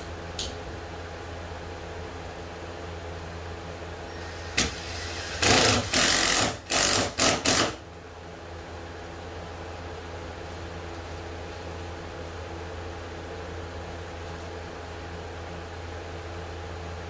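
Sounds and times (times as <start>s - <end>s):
steady low hum: 0.0s - 17.0s
cordless drill driving screws: 4.2s - 7.8s.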